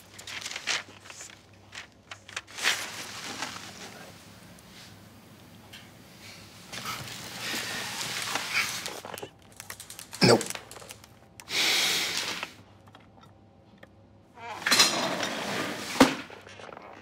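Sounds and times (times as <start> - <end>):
breathy hiss: 6.0 - 9.0, 11.4 - 12.6.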